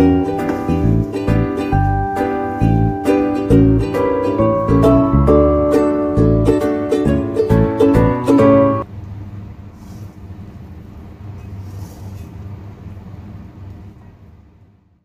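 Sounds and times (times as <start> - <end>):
plucked-string music: 0.0 - 8.8
kitchen background rumble: 0.0 - 15.0.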